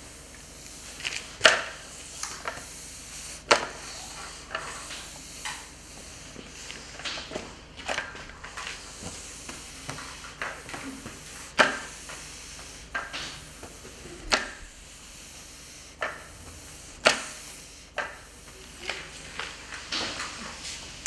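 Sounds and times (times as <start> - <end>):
mop swishing over tiles: 0.0 - 21.0.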